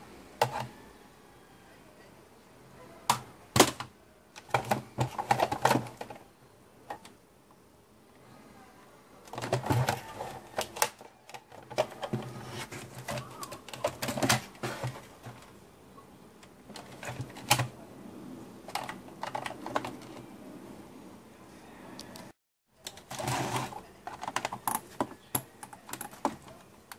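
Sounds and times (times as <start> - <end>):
plastic body clicking and rattling: 3.6 - 6.2, 9.3 - 15.5, 18.7 - 20.2, 22.8 - 26.6.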